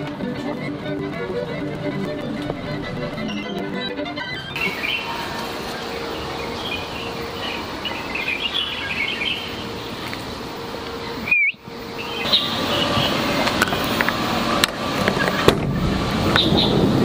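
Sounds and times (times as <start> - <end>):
outdoor background noise: 0.0 - 17.0
small birds chirping: 2.1 - 14.3, 16.3 - 16.8.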